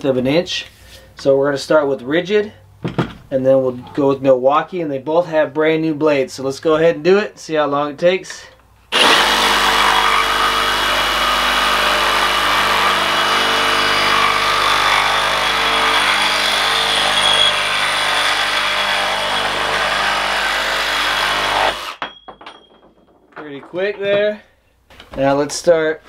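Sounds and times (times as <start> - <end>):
reciprocating saw cutting steel pipe: 9.0 - 22.0.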